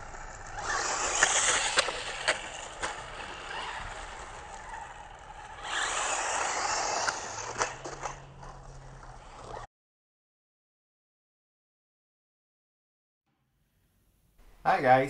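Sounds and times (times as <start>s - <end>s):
toy car driving on asphalt: 0.0s - 9.7s.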